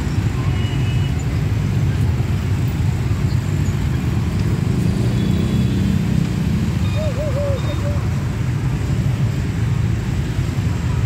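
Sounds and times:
motorbike traffic rumble: 0.0 - 11.0.

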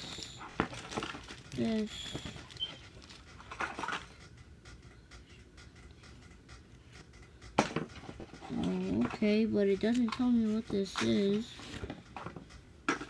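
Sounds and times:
package rustling: 0.5 - 3.3.

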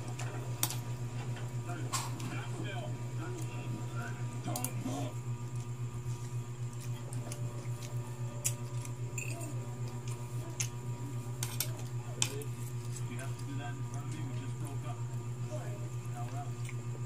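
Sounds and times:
steady low hum: 0.0 - 17.0
faint chewing: 4.5 - 14.8, 16.0 - 17.0.

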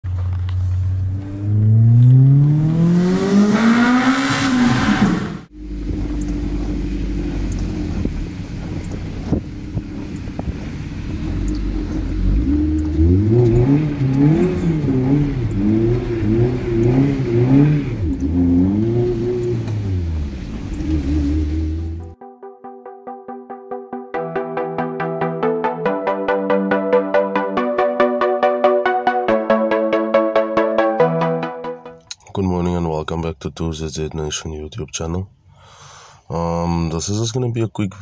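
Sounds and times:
car engine revving and idling: 0.0 - 22.2.

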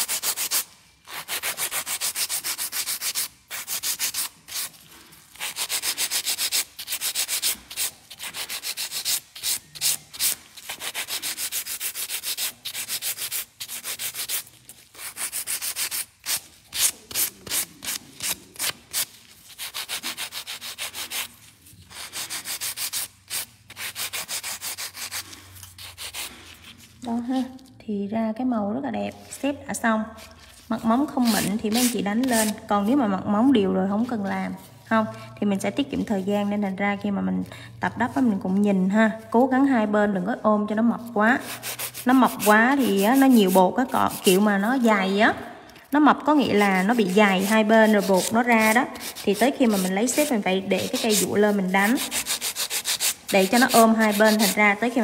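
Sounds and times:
nail file rasping on a nail: 0.0 - 21.3, 21.9 - 26.8, 31.0 - 32.6, 41.4 - 44.9, 46.5 - 54.6.

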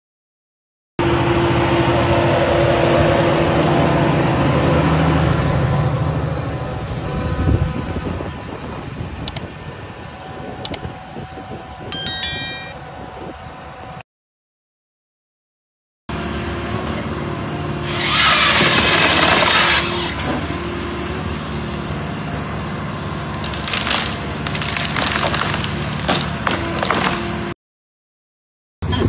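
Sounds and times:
machine engine and hydraulics: 1.0 - 14.0, 16.1 - 27.6
loud sawing: 17.7 - 22.0, 23.2 - 27.6
branches cracking and splintering: 18.1 - 20.3, 23.2 - 27.5.

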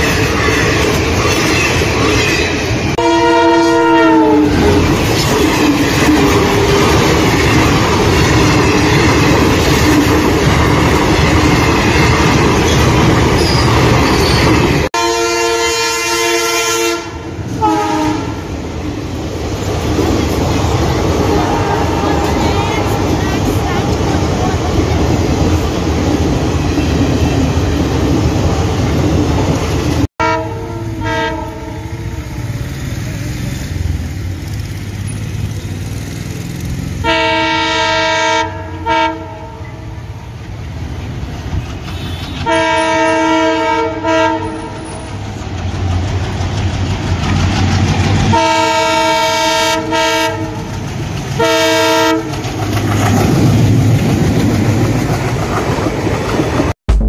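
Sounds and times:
wheel clickety-clack: 0.0 - 3.0, 4.6 - 14.9, 41.2 - 42.9, 44.5 - 48.4, 50.4 - 51.4, 52.1 - 56.7
train coaches rumbling past: 0.0 - 57.0
locomotive horn toots: 2.9 - 5.0, 13.4 - 18.5, 30.2 - 32.5, 37.0 - 39.9, 41.8 - 45.1, 48.3 - 50.7, 51.4 - 52.4.

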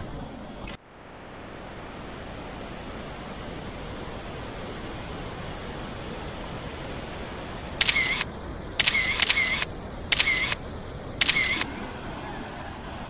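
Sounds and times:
camera shutter clicks: 7.8 - 10.6, 11.2 - 11.7.

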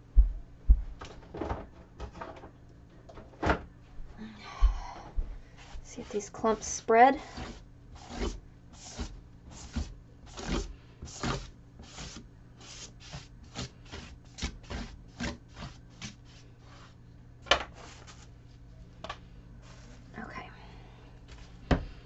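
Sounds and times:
brush scraping paint on board: 5.6 - 17.0.

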